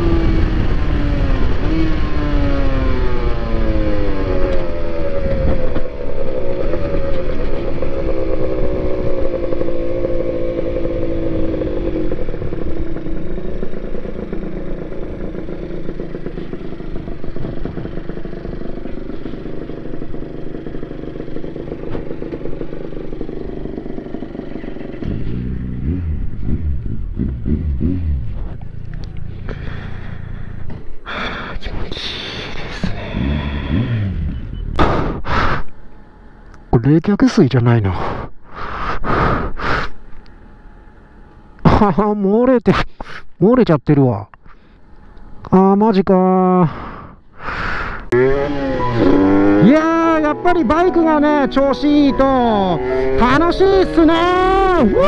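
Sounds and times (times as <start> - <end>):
motorcycle engine: 0.0 - 36.7, 39.3 - 42.0, 44.5 - 55.0.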